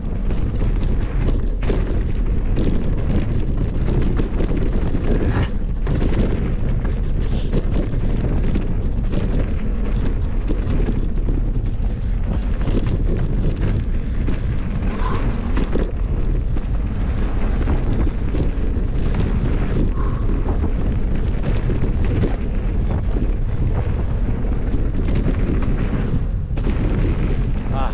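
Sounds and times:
bike knocking and rattling: 0.0s - 27.9s
bike tyre noise on dirt: 0.0s - 27.9s
wind rumbling on microphone: 0.0s - 27.9s.

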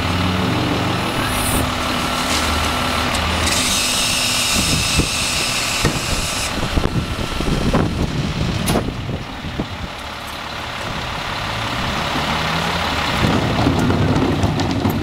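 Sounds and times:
truck engine idling: 0.0s - 15.0s
sharp knocks of carts: 10.2s - 15.0s.

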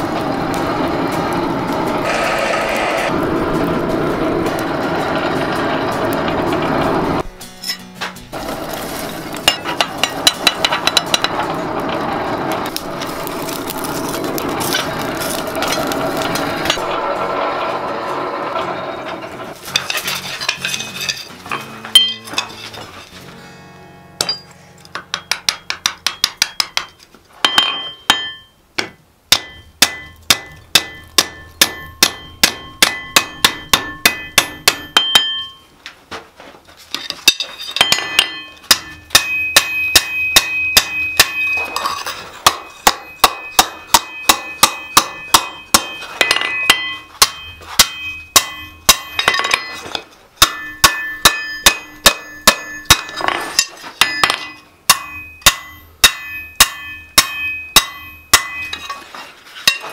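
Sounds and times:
hammer striking metal on anvil: 9.4s - 11.6s, 19.8s - 22.6s, 24.2s - 35.6s, 37.3s - 59.0s
anvil ringing: 20.5s - 22.6s, 24.2s - 28.6s, 29.3s - 35.7s, 37.3s - 59.0s.

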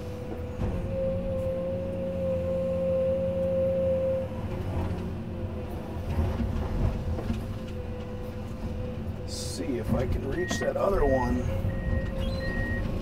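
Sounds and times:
excavator diesel engine running: 0.0s - 13.0s
knocks and clunks: 6.0s - 13.0s.

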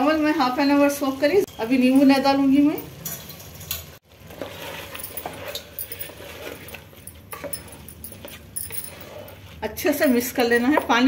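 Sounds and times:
wooden spoon scraping pot: 4.1s - 11.0s.

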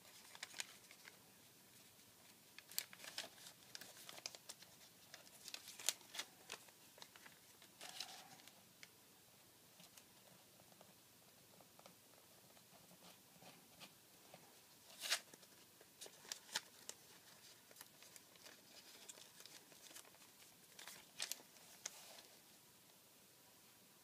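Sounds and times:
paper being folded: 0.0s - 8.6s, 14.9s - 22.4s.

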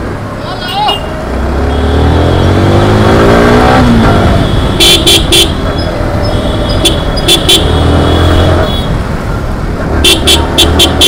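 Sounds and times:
motorcycle engine accelerating: 1.1s - 8.8s.

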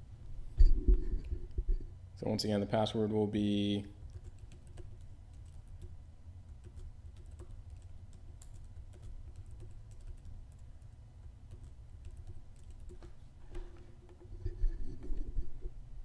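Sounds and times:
low steady hum: 0.0s - 16.0s
computer keyboard keystrokes: 4.0s - 14.3s.

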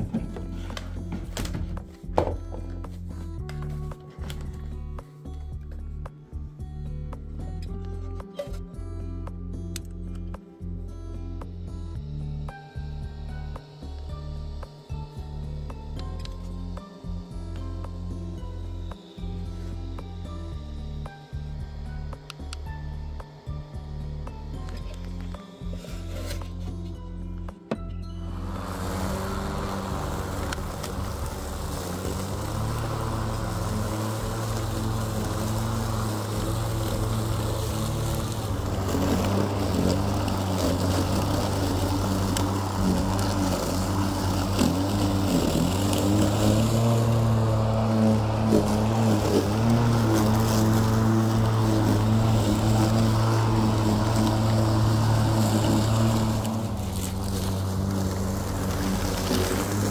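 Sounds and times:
electric lawn mower humming: 0.0s - 59.9s.

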